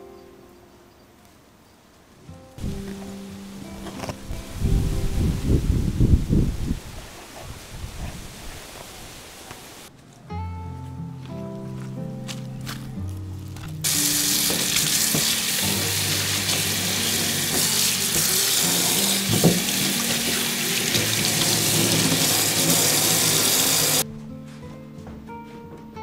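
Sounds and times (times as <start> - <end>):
tap water pouring into metal sink: 13.9 - 24.0.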